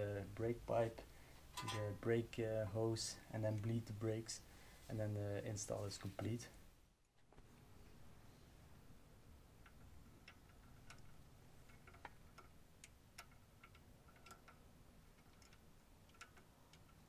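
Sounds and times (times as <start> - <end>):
small metal clicks and taps: 9.6 - 17.0.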